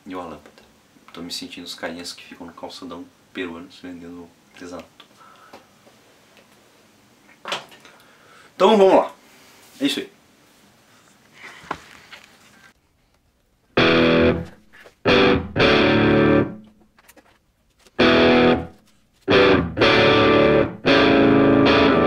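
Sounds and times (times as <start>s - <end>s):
distorted electric guitar chords: 13.8s - 16.7s, 18.0s - 22.0s.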